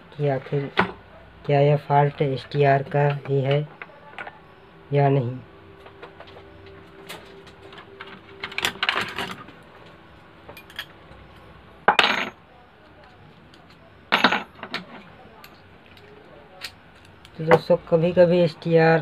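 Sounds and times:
metal tools clinking on workbench: 0:10.5 - 0:11.0.

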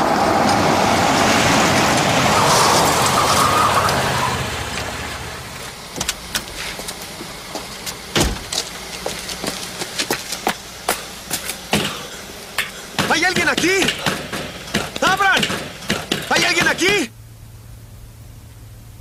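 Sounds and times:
quick footsteps on pavement: 0:05.8 - 0:12.5
car door shutting: 0:08.1 - 0:08.7.

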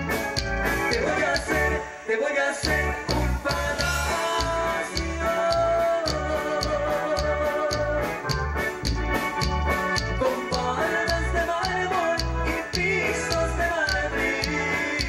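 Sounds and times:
live band playing: 0:00.0 - 0:15.0
organ-like keyboard notes: 0:00.0 - 0:15.0
ticking cymbals: 0:00.9 - 0:07.9.

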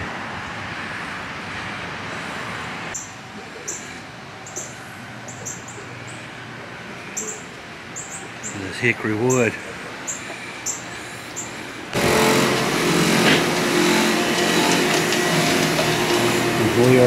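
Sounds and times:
small bird chirping: 0:02.9 - 0:06.3, 0:07.1 - 0:08.6, 0:09.3 - 0:11.6.

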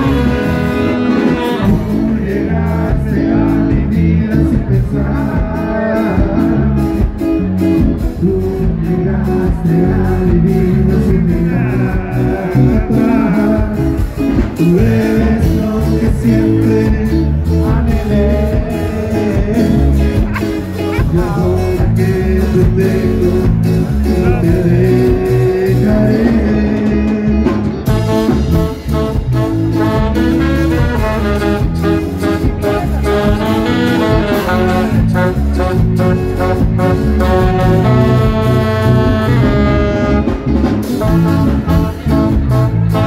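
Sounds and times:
saxophone horn section: 0:00.0 - 0:02.2, 0:27.9 - 0:43.0
bass: 0:00.0 - 0:43.0
drums: 0:00.0 - 0:43.0
ska band playing: 0:00.0 - 0:43.0.

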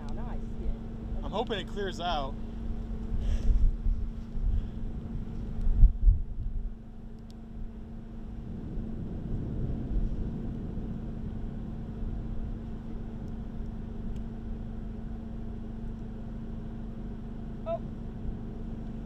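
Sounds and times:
low hum: 0:00.0 - 0:19.0
wind rumbling on microphone: 0:02.5 - 0:15.5.

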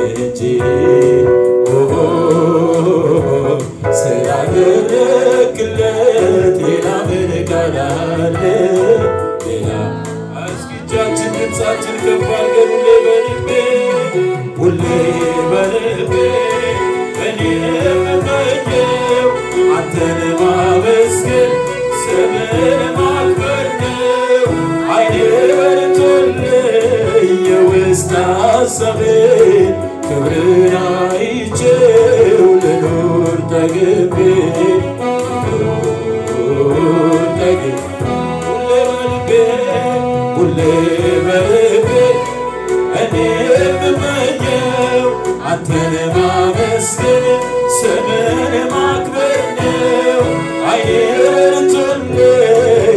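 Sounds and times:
man singing into a microphone: 0:00.0 - 0:52.9
musical accompaniment: 0:00.0 - 0:52.9.

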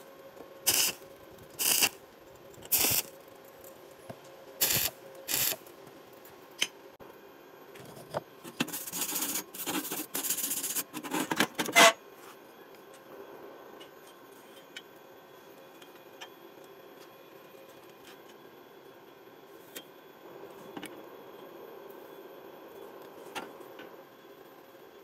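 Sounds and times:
welder crackling hiss: 0:00.6 - 0:02.0, 0:02.7 - 0:03.2, 0:04.6 - 0:05.7.

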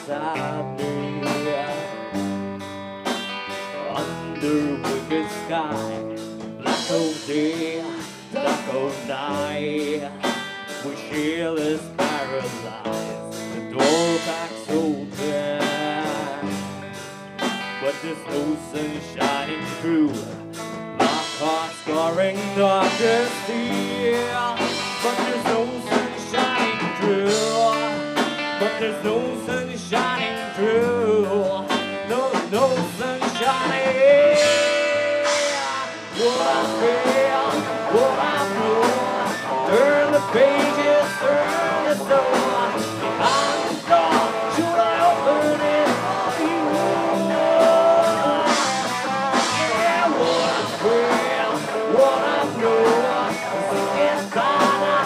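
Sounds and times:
steady drum beat: 0:00.0 - 0:55.0
lead guitar bending notes: 0:33.0 - 0:55.0.

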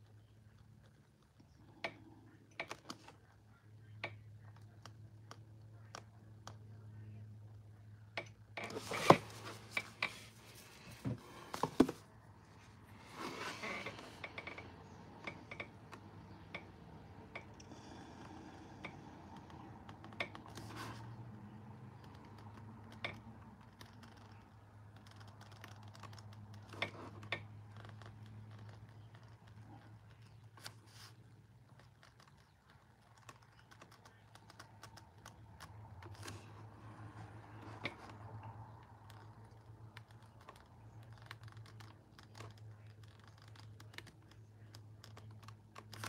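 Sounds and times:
paintbrush clicks and scrapes: 0:17.7 - 0:46.0.

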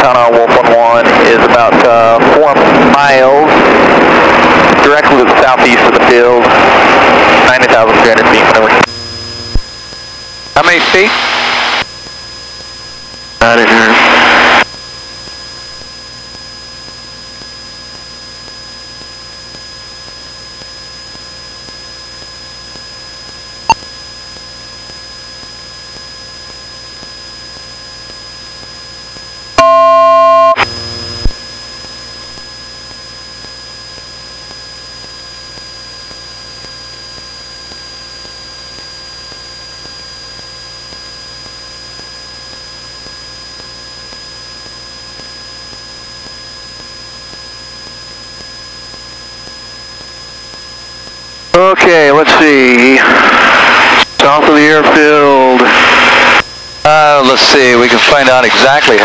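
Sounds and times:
loud electronic tone: 0:00.0 - 0:09.7, 0:10.6 - 0:11.9, 0:12.9 - 0:14.7, 0:29.6 - 0:31.4, 0:51.5 - 0:59.0
cockpit audio hiss and hum: 0:00.0 - 0:29.6, 0:30.5 - 0:59.0.

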